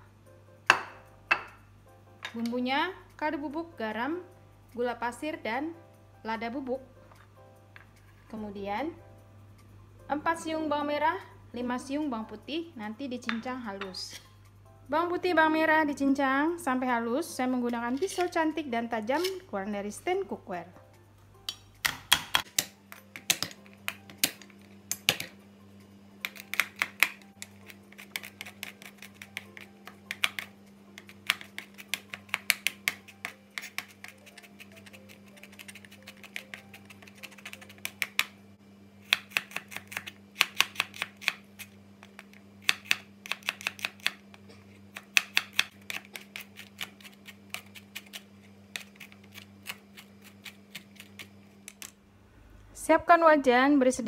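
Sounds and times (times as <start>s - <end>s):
knife chopping on cutting board: 21.8s - 24.4s, 26.2s - 38.3s, 39.1s - 41.4s, 42.0s - 44.2s, 45.0s - 48.2s.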